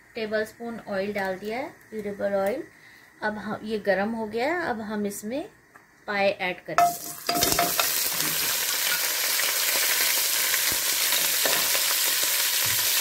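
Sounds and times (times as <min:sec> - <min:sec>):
meat sizzling in oil: 0:06.8 - 0:13.0.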